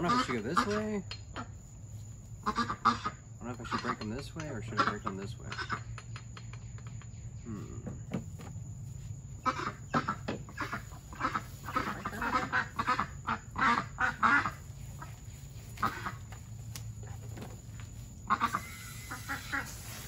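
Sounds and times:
ducks quacking: 0.0 - 1.6, 2.4 - 6.0, 9.4 - 20.0.

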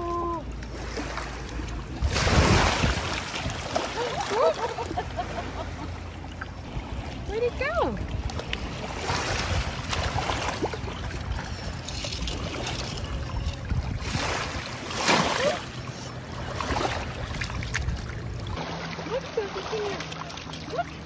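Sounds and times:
wind rumble on microphone: 1.8 - 5.0, 6.6 - 18.6
puppy splashing through water: 6.6 - 15.7, 16.4 - 21.0.

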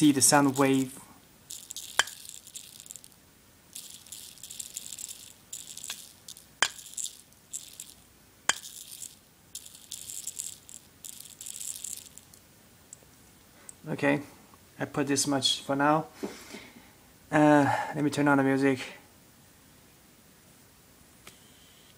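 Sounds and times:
salt rattling on speaker cone: 0.0 - 12.4.

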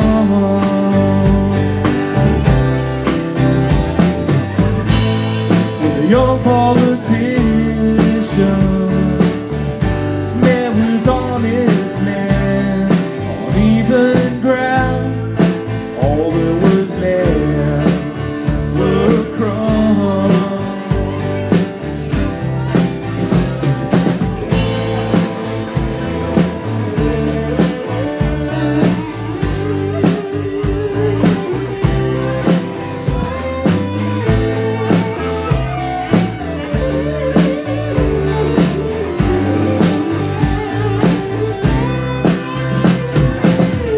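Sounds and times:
man singing: 0.0 - 2.5, 5.4 - 22.0
acoustic and electric guitars: 0.0 - 43.9
drum kit beat: 0.0 - 43.9.

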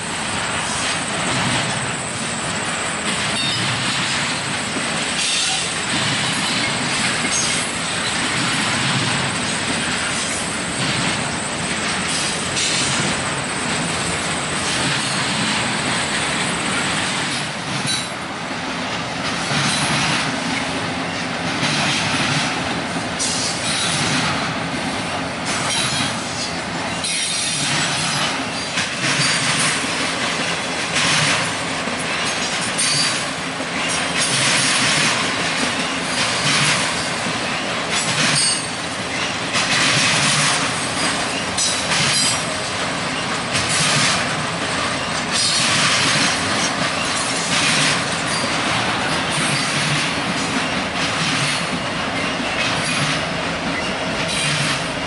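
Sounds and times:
freight train rumbling and rattling: 0.0 - 55.0
wheels clacking over rails: 0.0 - 55.0.

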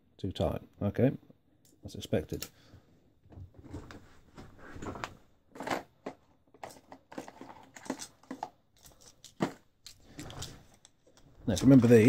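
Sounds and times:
small tools clicking and rustling: 5.6 - 12.0.

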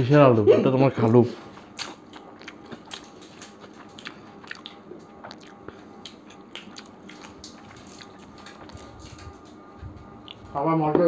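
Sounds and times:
chewing: 1.6 - 10.5
fingers clicking in rice: 1.8 - 9.6.

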